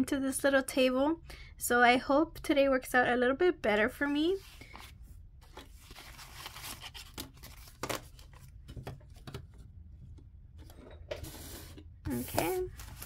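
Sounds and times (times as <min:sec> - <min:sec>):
paper bills rustling: 0:04.4 - 0:09.3, 0:12.1 - 0:13.0.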